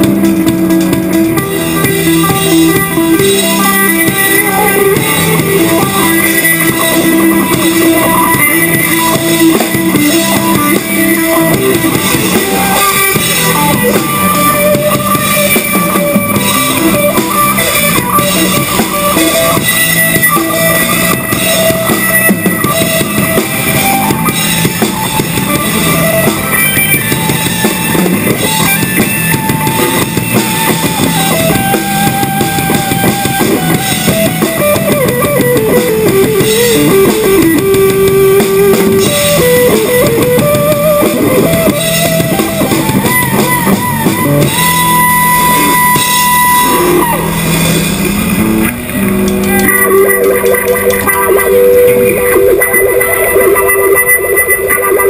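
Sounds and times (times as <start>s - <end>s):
drums steady beat: 0.0s - 55.0s
sustained guitar notes: 0.0s - 55.0s.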